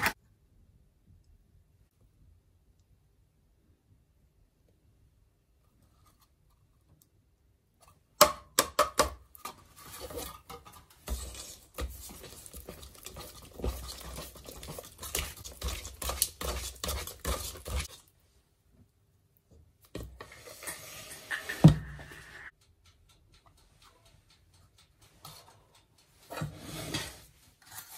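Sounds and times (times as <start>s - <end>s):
utensils clinking and scraping bowl: 9.4s - 18.1s, 24.5s - 27.9s.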